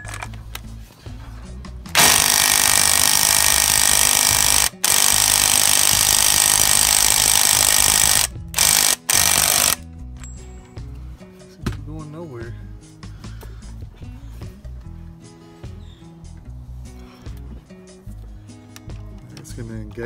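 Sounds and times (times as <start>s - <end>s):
impact wrench hammering: 1.9s - 9.8s.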